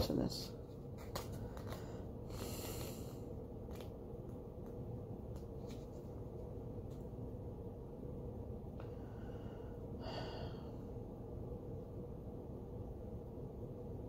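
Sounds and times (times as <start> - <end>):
steady low hum: 0.0 - 14.0
paper pages rustling: 0.6 - 2.0, 3.6 - 4.0, 4.6 - 7.0.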